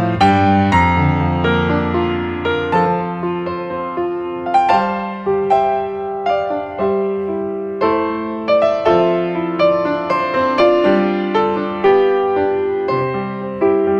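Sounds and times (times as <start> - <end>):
piano music: 0.0 - 13.9.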